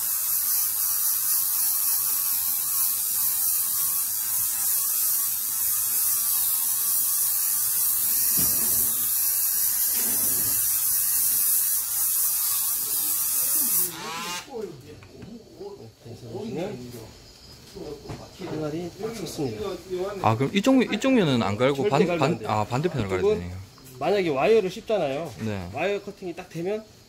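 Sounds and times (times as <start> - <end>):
rotary grinder grinding steel: 0.0 - 14.5.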